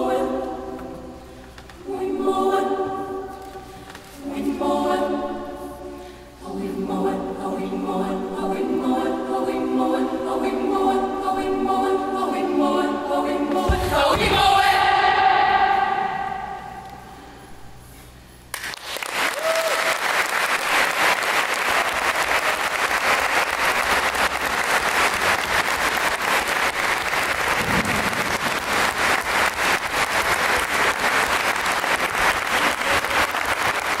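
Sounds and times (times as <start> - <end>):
audience applause: 18.6 - 34.0.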